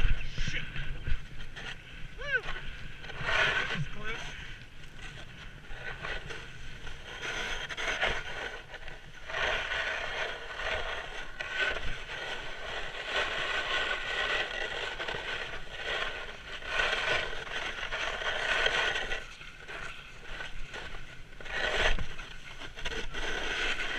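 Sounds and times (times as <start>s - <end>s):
snowboard scraping over snow: 0.0s - 23.9s.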